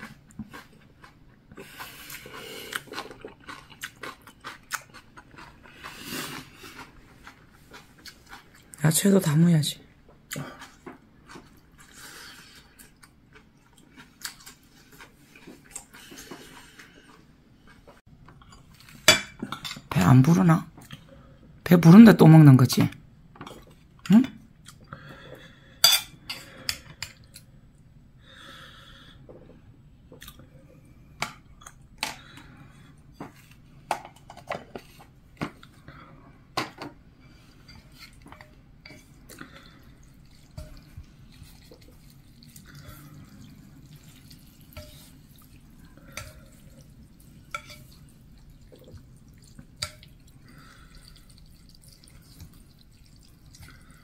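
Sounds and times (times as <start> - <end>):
low steady hum: 0.0 - 54.0
wet squelching of noodles: 37.3 - 54.0.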